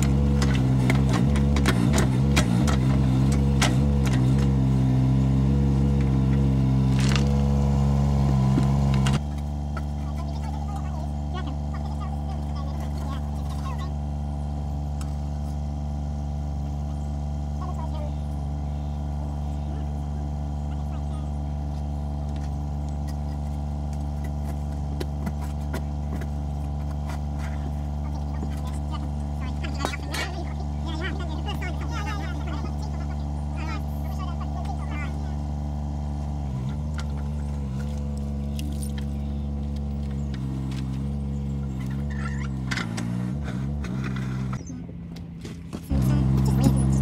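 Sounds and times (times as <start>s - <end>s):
digger bucket scraping earth and stones: 0.0s - 14.0s, 21.8s - 44.8s, 45.4s - 47.0s
diesel engine running: 0.0s - 47.0s
spade knocking and scraping: 22.3s - 30.6s.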